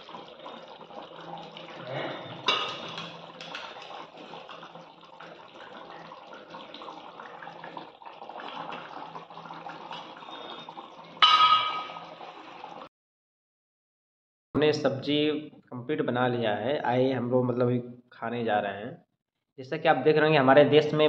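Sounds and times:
gravy bubbling in a pan: 0.0s - 12.9s
metal pan clanking: 2.4s - 3.7s, 11.2s - 12.1s.

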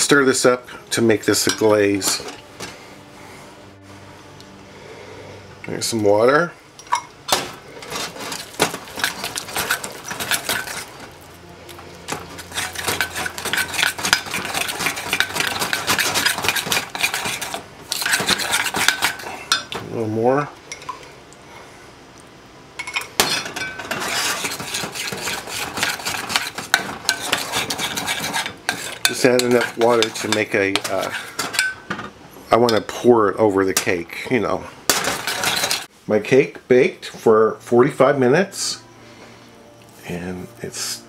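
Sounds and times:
metal spoon stirring in a bowl: 0.7s - 2.4s, 7.8s - 11.1s, 11.7s - 19.8s, 22.8s - 31.9s, 34.9s - 35.9s.

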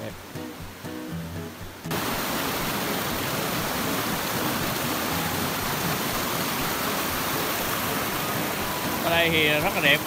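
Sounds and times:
music: 0.0s - 2.0s, 3.8s - 10.0s
creek water over boulders: 0.0s - 10.0s.

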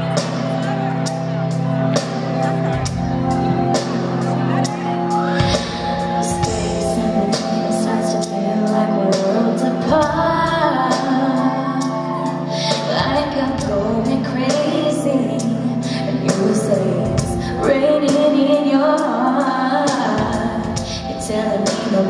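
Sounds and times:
bass line: 0.0s - 18.5s
keyboard chords: 0.0s - 22.0s
woman singing a pop ballad: 5.3s - 22.0s.

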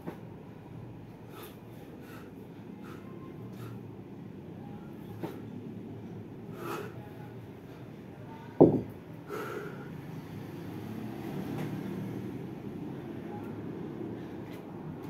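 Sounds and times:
low background hum: 0.0s - 10.9s, 11.5s - 15.0s
kettlebell thud on stone: 8.6s - 8.9s.

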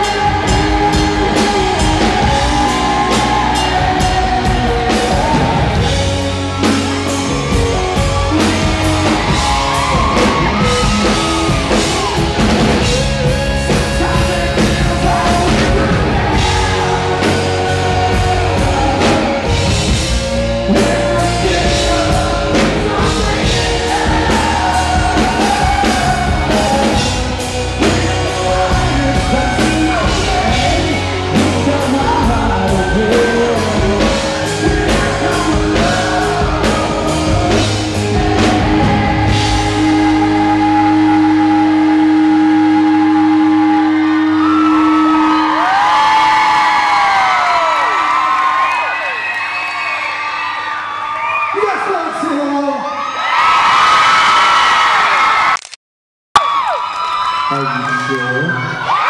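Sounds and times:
man singing loudly: 0.0s - 6.7s, 12.8s - 44.2s
live rock band: 0.0s - 51.6s.

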